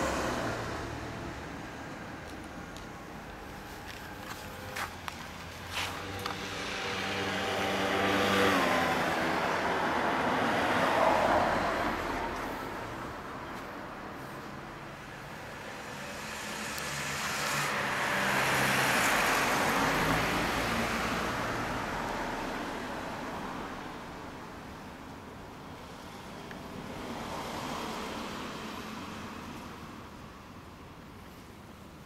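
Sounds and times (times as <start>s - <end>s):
vehicle passing by: 0.0s - 2.1s, 3.4s - 23.9s.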